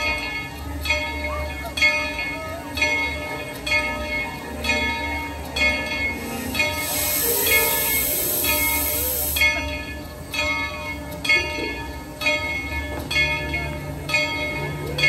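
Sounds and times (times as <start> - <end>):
locomotive bell ringing: 0.0 - 15.0
steam hissing: 6.0 - 9.6.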